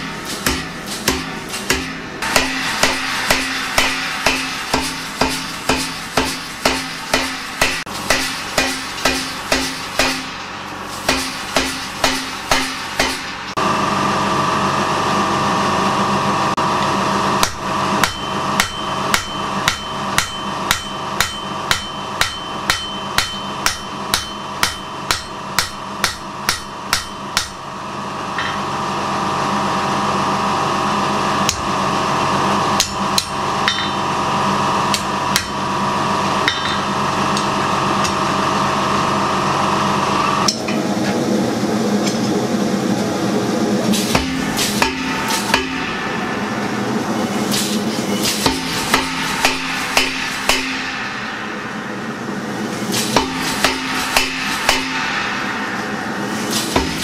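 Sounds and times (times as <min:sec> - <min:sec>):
hammer on hot steel: 0:00.0 - 0:10.4, 0:11.0 - 0:13.4, 0:17.4 - 0:27.6, 0:32.8 - 0:34.0, 0:34.9 - 0:35.6, 0:36.4 - 0:38.2, 0:44.0 - 0:46.4, 0:47.6 - 0:52.1, 0:52.9 - 0:57.0
steady hum: 0:00.0 - 0:57.0.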